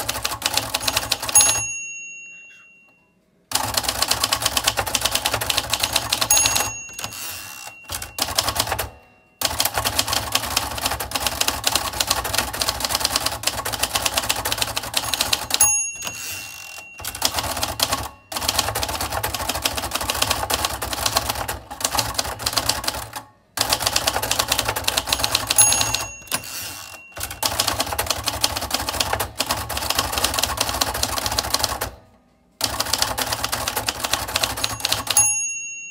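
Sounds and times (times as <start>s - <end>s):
typewriter keys clattering: 0.0s - 1.7s, 3.5s - 31.9s, 32.6s - 35.2s
typewriter carriage bell: 0.0s - 32.0s, 32.6s - 35.9s.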